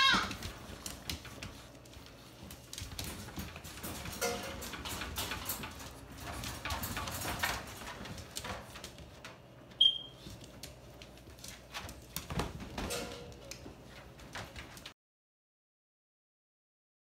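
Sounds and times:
puppy claws clicking on tile: 0.0s - 9.4s.

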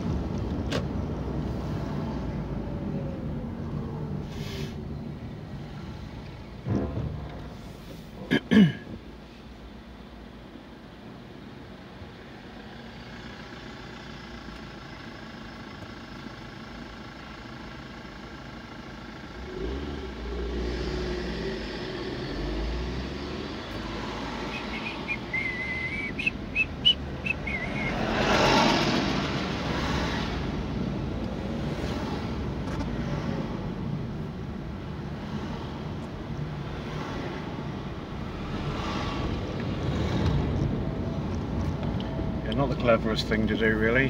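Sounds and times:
bus engine rumbling: 0.0s - 44.0s
vehicle rushing past: 19.5s - 30.8s
high squeal: 24.4s - 28.1s.

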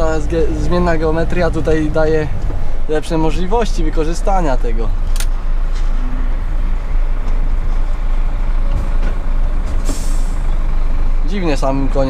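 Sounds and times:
diesel truck engine rumble: 0.0s - 12.0s
road noise: 0.0s - 12.0s
short air hiss: 9.8s - 10.5s.

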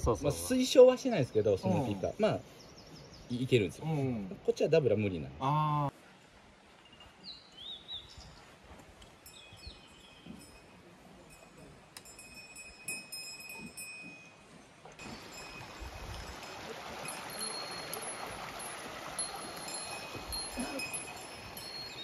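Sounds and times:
birds chirping and whistling: 9.3s - 10.5s, 19.6s - 22.0s
stream rushing: 15.0s - 22.0s.

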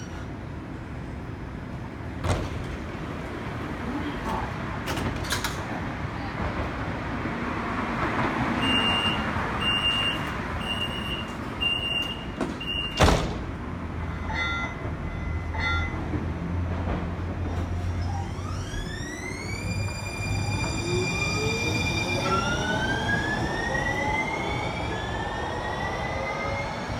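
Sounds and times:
train doors shutting: 0.0s - 0.7s, 1.7s - 6.8s, 7.9s - 26.9s
door warning beeps: 8.6s - 13.2s.

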